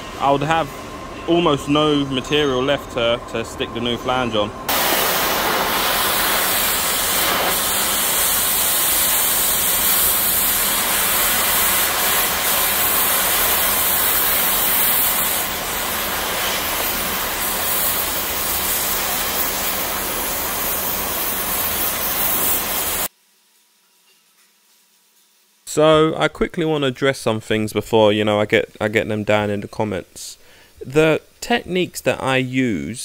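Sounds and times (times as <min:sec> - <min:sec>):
cutting torch hissing: 0:00.0 - 0:23.1.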